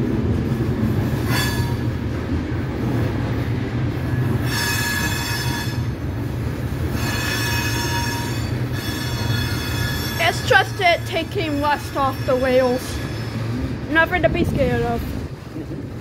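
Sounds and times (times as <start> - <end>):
freight train rumble: 0.0 - 16.0
train wheels squealing: 1.3 - 1.9, 4.4 - 5.9, 6.9 - 10.6, 11.5 - 13.6.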